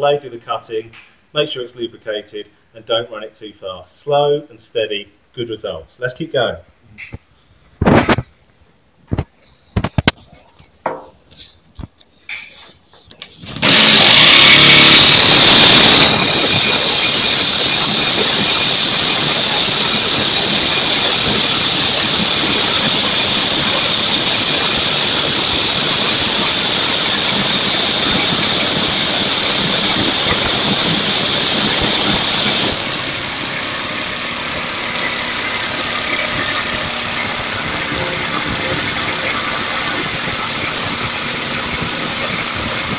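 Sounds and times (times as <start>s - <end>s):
knocks: 10.8s - 11.2s
jigsaw cutting steel: 13.4s - 42.9s.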